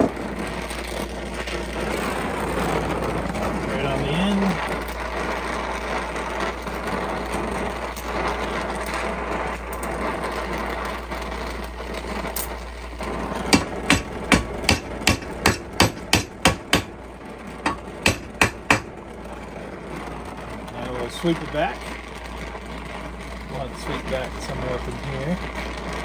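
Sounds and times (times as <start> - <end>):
gas torch flame hissing: 0.0 - 26.0
hammer strikes on metal: 13.5 - 16.9, 17.7 - 18.9.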